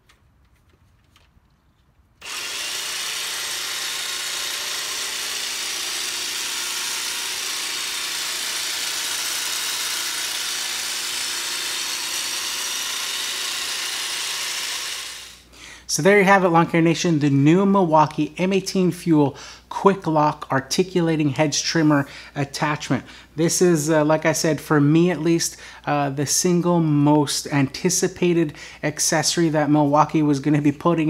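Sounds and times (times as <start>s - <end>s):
hedge trimmer cutting: 2.2s - 15.5s.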